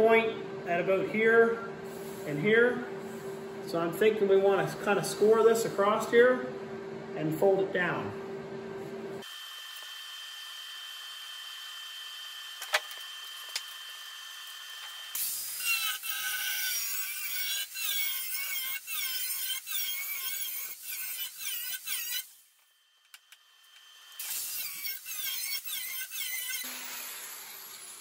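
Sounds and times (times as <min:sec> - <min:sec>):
angle grinder cutting steel: 0:09.7 - 0:22.4, 0:23.5 - 0:28.0.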